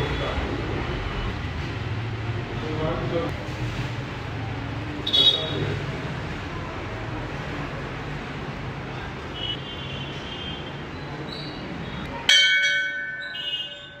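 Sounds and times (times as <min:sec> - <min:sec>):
temple bell ringing: 0:12.2 - 0:14.0.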